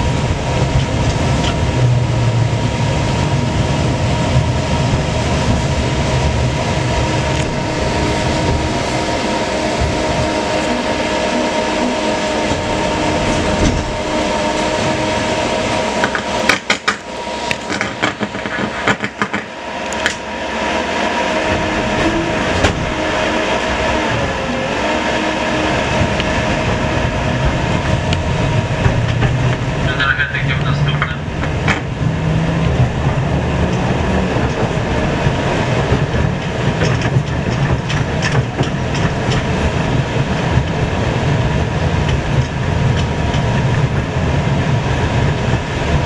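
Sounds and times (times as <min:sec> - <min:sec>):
wheels clacking on track: 0:00.0 - 0:20.3, 0:21.0 - 0:46.0
running gear whine: 0:00.0 - 0:46.0
tram rumbling: 0:00.0 - 0:46.0.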